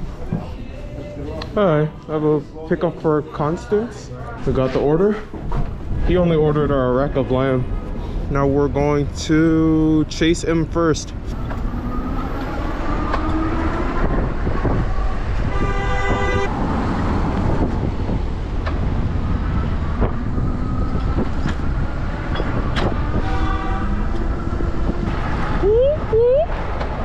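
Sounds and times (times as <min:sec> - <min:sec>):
wind and road noise: 0:04.3 - 0:27.0
vehicle horn: 0:15.4 - 0:16.5, 0:23.0 - 0:24.2.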